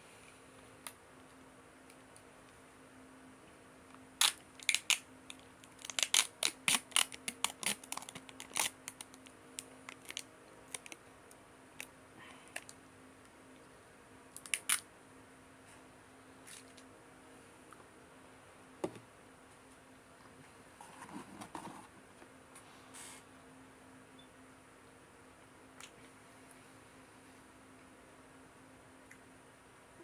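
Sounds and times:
plastic lid crinkling and tearing: 5.7 - 9.1.

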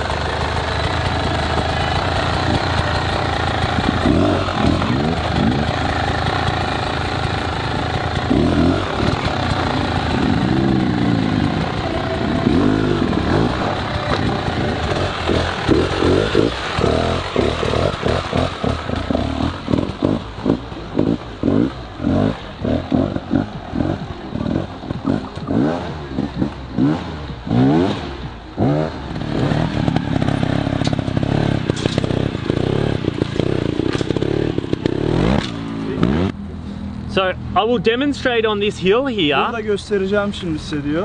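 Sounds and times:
dirt bike engines revving: 0.0 - 41.0.

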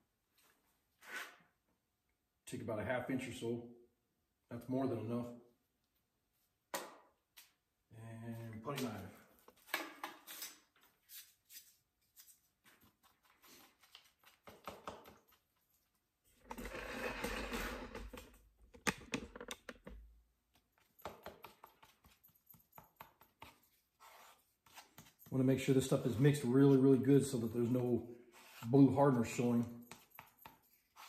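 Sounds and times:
putty knife scraping and tapping: 13.1 - 15.4, 21.0 - 25.3, 29.8 - 31.0.

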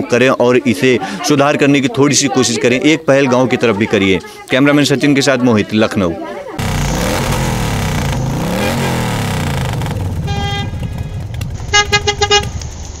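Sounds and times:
car horn honking: 6.6 - 11.0, 11.7 - 12.6
vehicle passing: 6.6 - 11.8.

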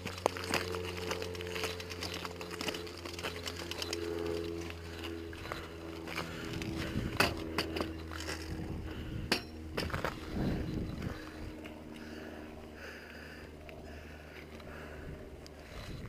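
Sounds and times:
bike rattling: 0.0 - 16.0
tyres crunching over gravel: 0.0 - 16.0.

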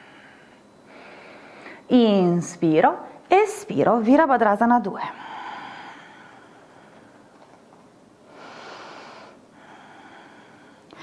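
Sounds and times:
woman breathing: 0.0 - 1.9, 5.0 - 7.5, 8.2 - 11.0.

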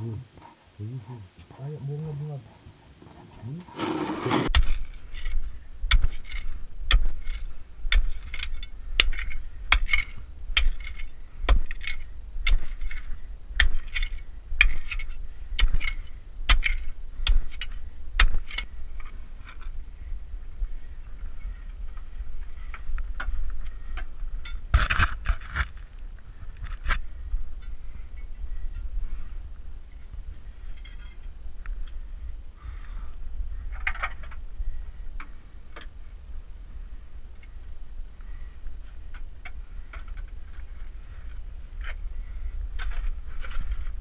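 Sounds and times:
scraping: 3.0 - 19.8
steel bar striking earth: 3.8 - 19.0.

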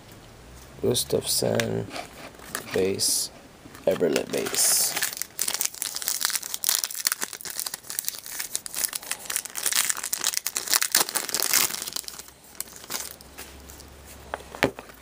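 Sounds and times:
wrapper crinkling and tearing: 3.8 - 13.9.

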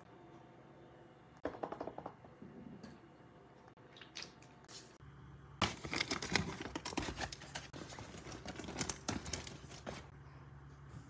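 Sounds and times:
paper bags rustling and crinkling: 5.6 - 10.1.

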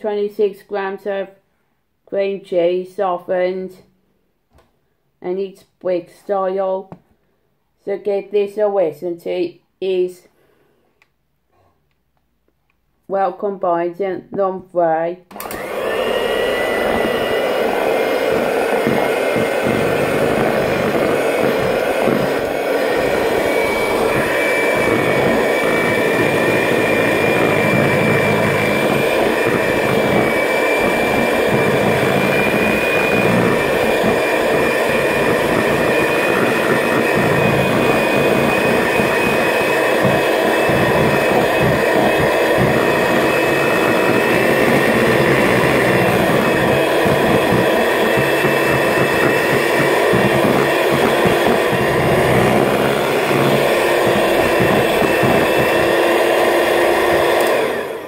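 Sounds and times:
electric hand mixer whining: 15.3 - 58.0.

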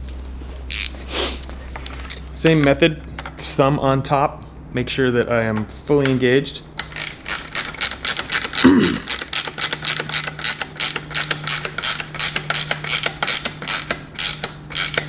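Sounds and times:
ratchet wrench clicking: 0.7 - 0.9, 6.8 - 15.0.

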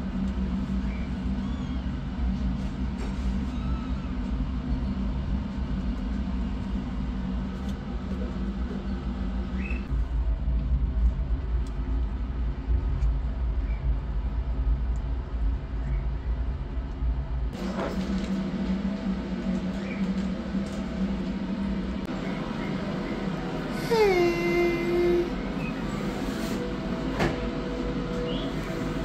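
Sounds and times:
low rumble: 0.0 - 22.2
kitten mewing: 23.8 - 25.3.

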